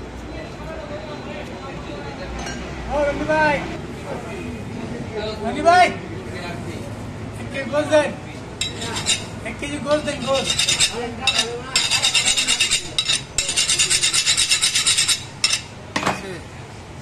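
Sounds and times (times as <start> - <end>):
rhythmic rasping scrapes: 8.6 - 15.7.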